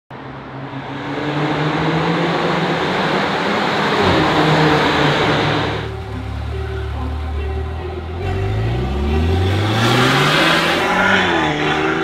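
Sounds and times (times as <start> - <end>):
car accelerating past in tunnel: 8.2 - 12.0.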